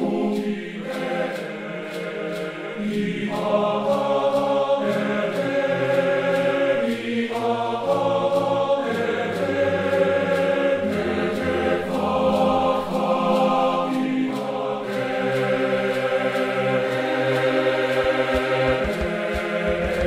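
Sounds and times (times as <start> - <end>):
choir-like chanting voices: 0.0 - 20.0.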